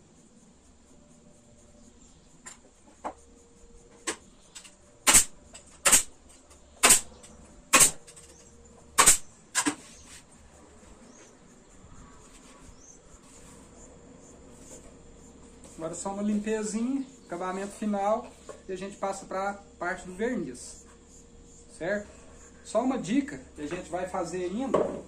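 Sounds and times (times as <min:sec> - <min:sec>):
pneumatic nailer shots: 0:05.0 - 0:06.2, 0:06.8 - 0:08.2, 0:09.0 - 0:09.8.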